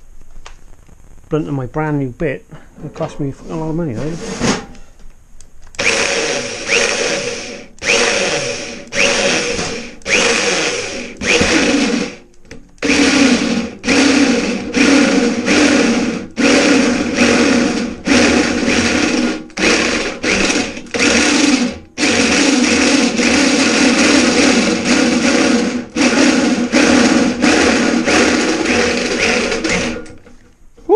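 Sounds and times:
electric drill boring into metal: 5.7s - 12.2s, 12.8s - 30.3s.

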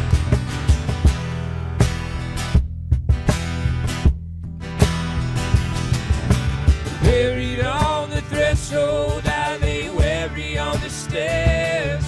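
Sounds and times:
electric bass: 0.0s - 12.0s
strummed acoustic guitars: 0.0s - 12.0s
person singing: 7.0s - 12.0s.

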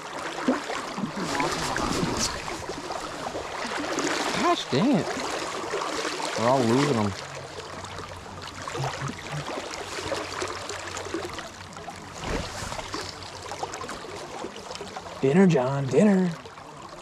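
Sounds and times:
river current rushing: 0.0s - 8.8s.

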